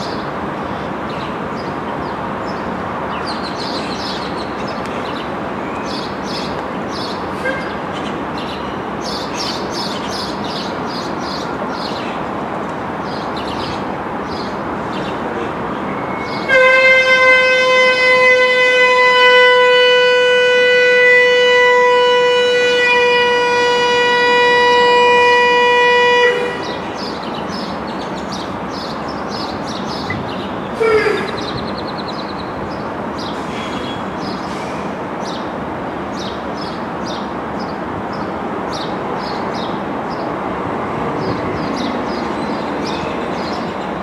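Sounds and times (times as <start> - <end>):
locomotive air horn chord: 16.3 - 27.0.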